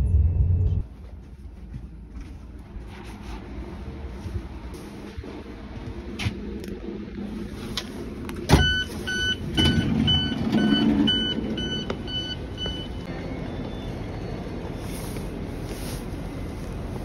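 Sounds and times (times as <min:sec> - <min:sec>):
repeating warning beep: 0:08.6 - 0:14.5.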